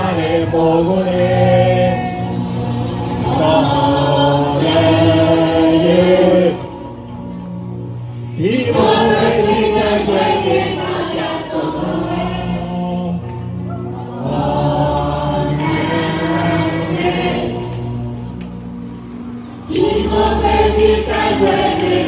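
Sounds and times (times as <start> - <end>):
group singing slow song: 0.0 - 7.1, 8.3 - 18.1, 19.6 - 22.0.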